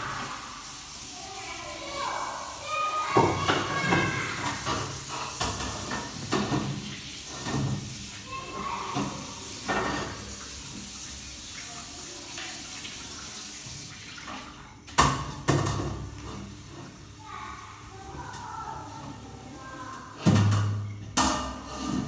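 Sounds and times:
tap running into sink: 3.1s - 8.2s, 8.9s - 11.0s, 13.6s - 17.0s
sharp clatter of dishes: 3.2s - 7.9s, 8.9s - 10.3s, 14.9s - 16.4s, 20.2s - 22.0s.

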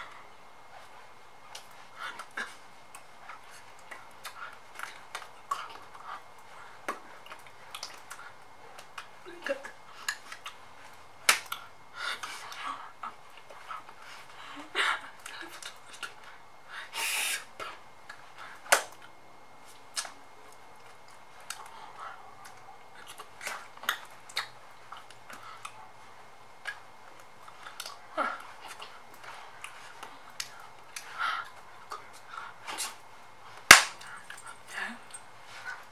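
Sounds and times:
sharp hand clap: 33.7s - 34.0s.

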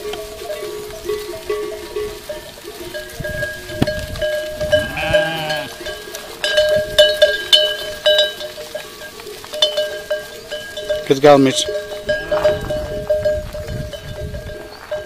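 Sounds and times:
neck bells clanking: 0.0s - 15.0s
sheep bleating: 4.6s - 6.3s, 12.1s - 13.1s.

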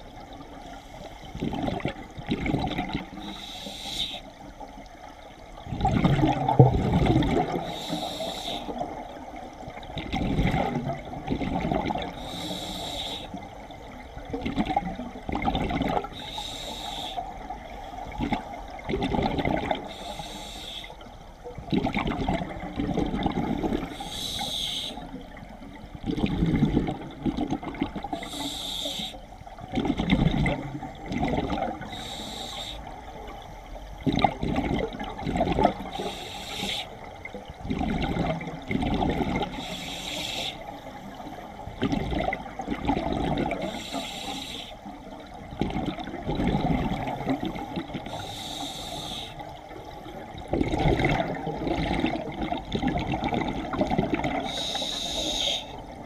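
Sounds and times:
bubbling exhaust underwater: 0.0s - 56.0s
hissing inhale through regulator: 3.1s - 4.4s, 7.5s - 8.8s, 12.0s - 13.5s, 16.0s - 17.5s, 19.8s - 21.2s, 23.7s - 25.2s, 28.0s - 29.4s, 31.8s - 33.4s, 35.8s - 37.1s, 39.5s - 41.5s, 43.5s - 44.9s, 47.1s - 50.2s, 54.4s - 55.9s.

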